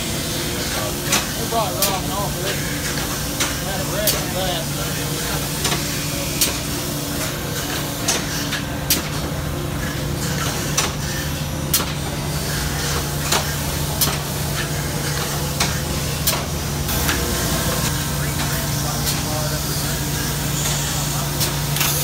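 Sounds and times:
sawmill machinery humming: 0.0s - 22.0s.

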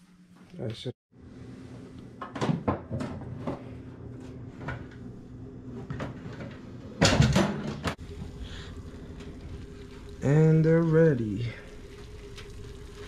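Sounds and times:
steady low hum: 3.0s - 13.0s.

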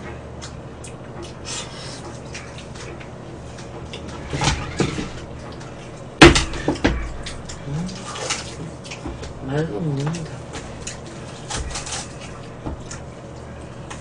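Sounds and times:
dishes clattering: 4.0s - 5.3s.

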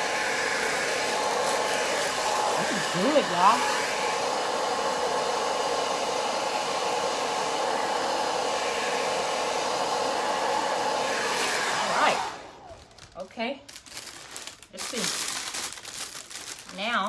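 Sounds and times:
hair dryer running: 0.0s - 12.9s.

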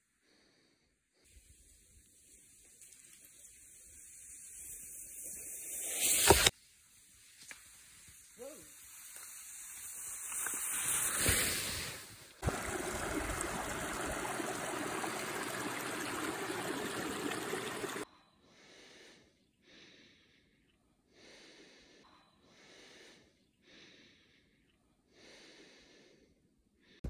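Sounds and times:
person breathing: 0.0s - 1.8s, 17.6s - 27.0s
skis hissing over snow: 1.3s - 18.0s
brook rushing over rocks: 12.4s - 18.0s.

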